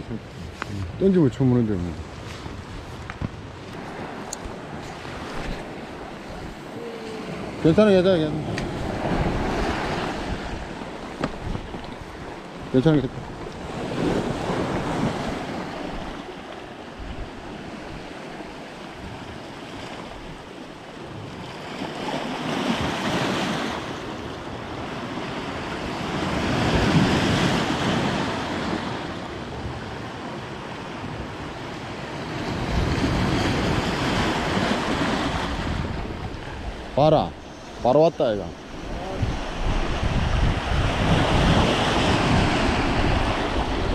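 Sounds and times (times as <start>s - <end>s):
wind buffeting microphone: 0.0s - 20.5s, 31.0s - 43.9s
sea swell washing in: 0.1s - 20.6s, 32.2s - 43.9s.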